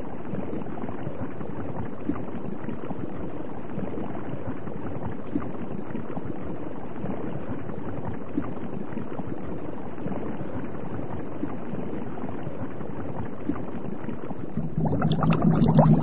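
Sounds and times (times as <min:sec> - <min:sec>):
bubbling with low hum: 0:00.0 - 0:16.0
underwater water rush: 0:14.5 - 0:16.0.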